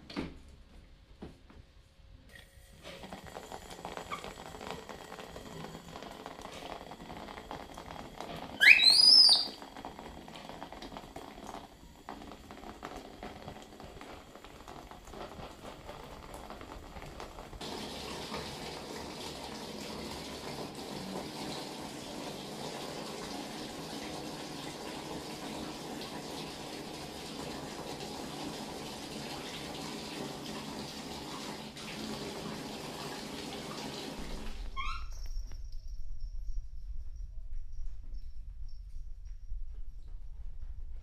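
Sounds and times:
water running and splashing: 2.7 - 34.8
high squeal: 8.6 - 9.6, 34.8 - 39.6.

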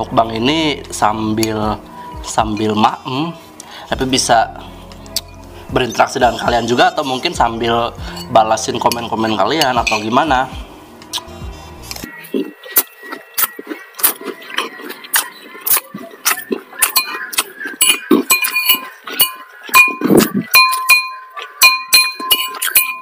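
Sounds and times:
metal spoon scraping ceramic plate: 8.2 - 10.2, 16.8 - 23.0.

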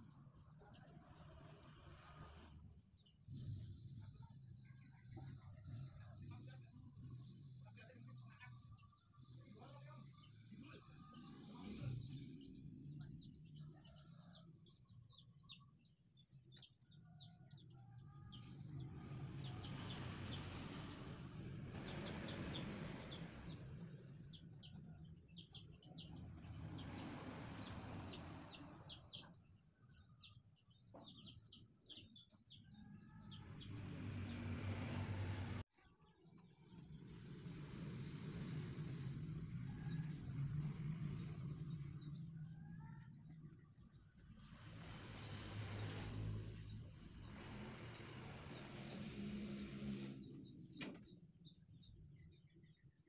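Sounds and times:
small birds chirping: 0.0 - 53.0
broad rushes of noise: 18.4 - 29.3, 33.0 - 35.7, 36.7 - 43.4, 44.2 - 50.9.

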